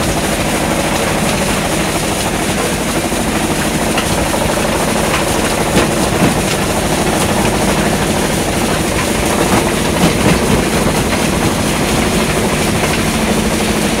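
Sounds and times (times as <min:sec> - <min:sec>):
rock crusher machinery din: 0:00.0 - 0:14.0.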